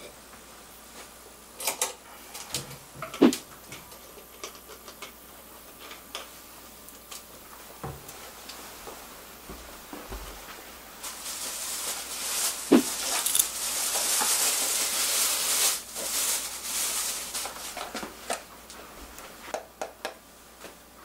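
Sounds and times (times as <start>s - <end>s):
rustling: 11.0s - 18.3s.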